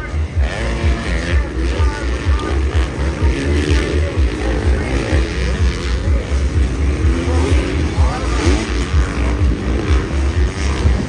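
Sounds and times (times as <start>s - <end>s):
dirt bike engines revving: 0.0s - 11.0s
wind rumble on microphone: 5.5s - 11.0s.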